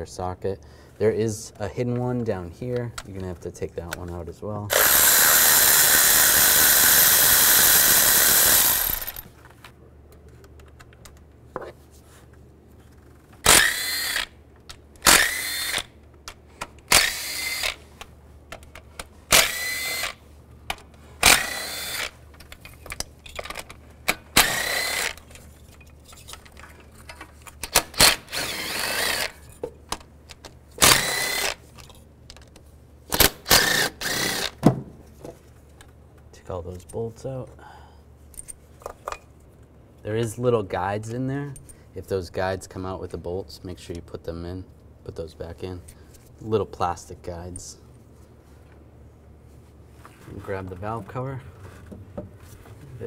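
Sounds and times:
power ratchet whirring: 4.7s - 9.3s, 13.4s - 14.4s, 15.0s - 16.0s, 16.9s - 17.8s, 19.3s - 20.2s, 21.2s - 22.2s, 24.3s - 25.3s, 27.7s - 29.4s, 30.8s - 31.6s, 33.2s - 34.6s
parts clicking and rattling: 4.7s - 11.4s, 12.9s - 34.5s.

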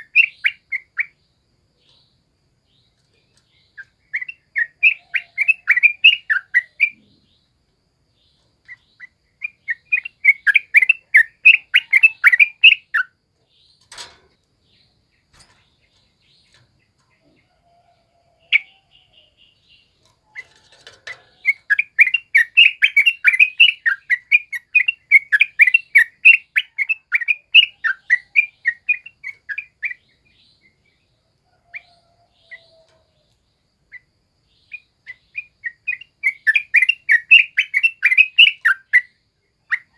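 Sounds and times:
bulbul chattering song: 0.0s - 1.2s, 3.2s - 7.6s, 8.3s - 13.2s, 18.4s - 31.0s, 33.8s - 39.9s.

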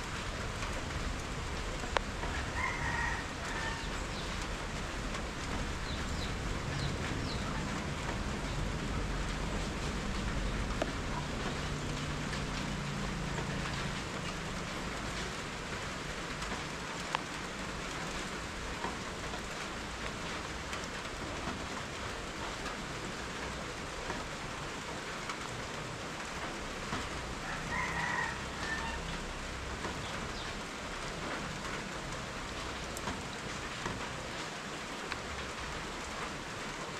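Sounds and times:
steady rain falling: 0.0s - 36.9s.

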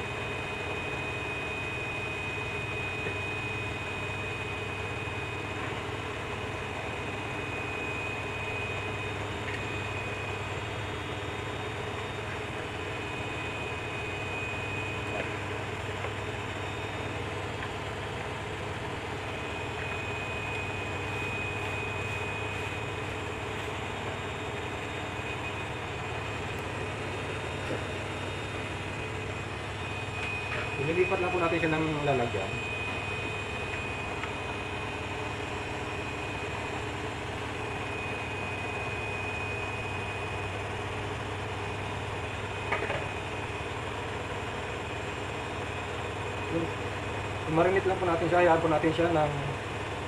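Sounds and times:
appliance motor humming: 0.0s - 50.0s
thin high whine: 18.4s - 49.6s.

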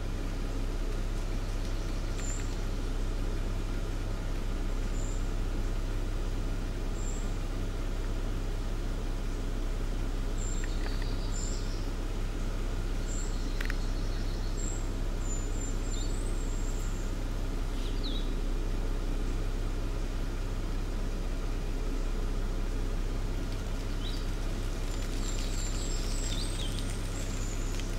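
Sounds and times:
small birds chirping: 0.0s - 27.9s
steady low hum: 0.0s - 27.9s
click: 10.6s - 11.2s, 13.6s - 13.8s.

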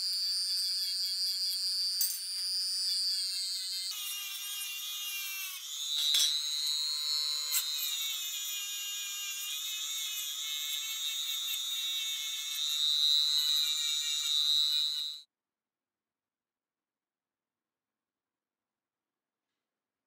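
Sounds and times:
rotary tool whining on metal: 0.0s - 15.2s.

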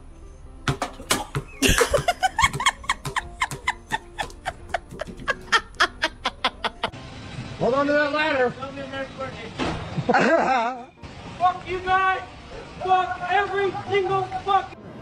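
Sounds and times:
person laughing hard: 1.5s - 6.9s, 10.1s - 10.9s.

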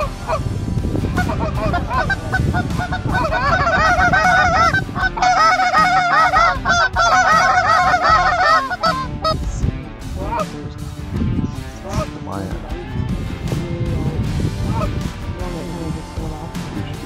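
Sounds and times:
geese honking: 0.0s - 0.4s, 1.0s - 9.4s, 14.6s - 15.0s
low wind rumble: 0.0s - 17.0s.

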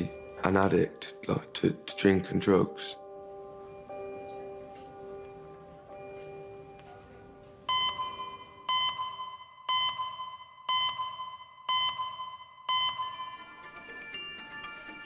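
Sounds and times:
electronic ringing beeps: 7.7s - 15.0s.

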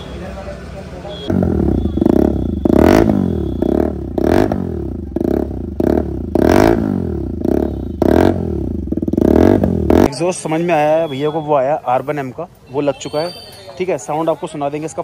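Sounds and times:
motorcycle engine revving: 1.2s - 10.3s.

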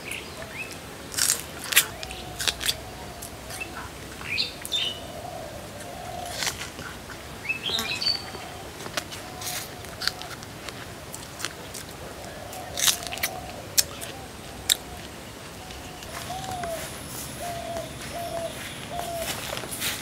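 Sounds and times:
birds chirping: 0.0s - 20.0s
crisp bites and chewing fruit: 1.2s - 2.8s, 12.7s - 14.1s.

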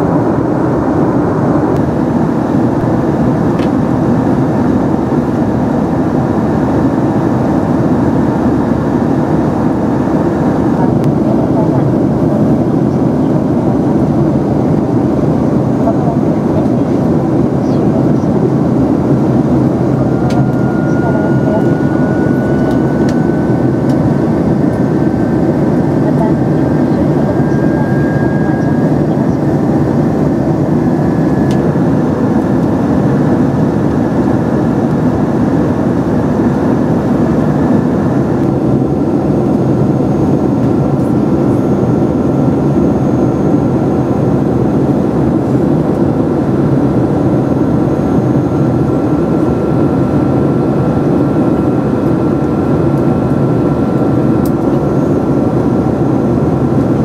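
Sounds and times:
airplane cabin engine rush: 0.0s - 57.0s
faint high tone: 20.0s - 23.9s, 26.9s - 29.4s.

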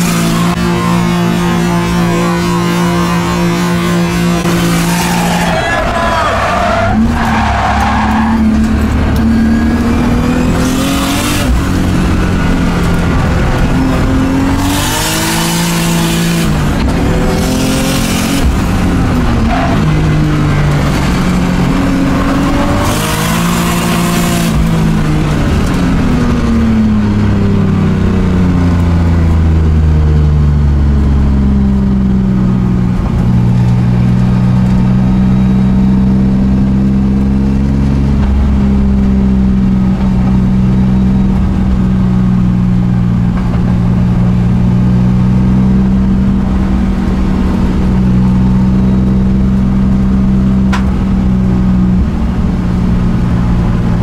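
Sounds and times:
car engine revving: 0.0s - 54.0s
tyre squeal: 4.5s - 8.6s.

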